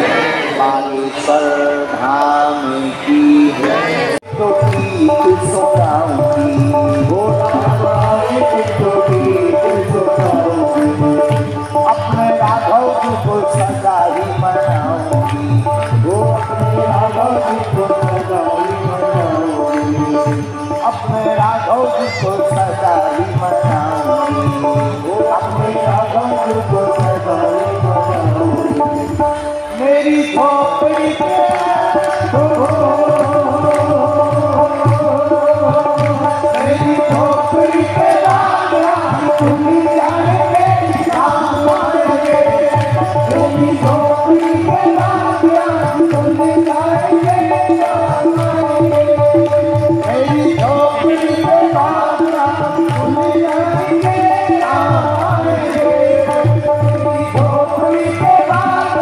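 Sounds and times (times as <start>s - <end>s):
devotional music over loudspeaker: 0.0s - 59.0s
person singing: 0.0s - 59.0s
tabla rhythm: 0.0s - 59.0s.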